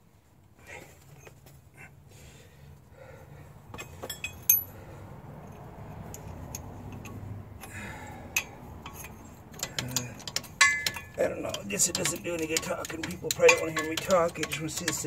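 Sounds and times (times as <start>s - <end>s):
light metallic clinks: 3.8s - 4.8s, 5.4s - 15.0s.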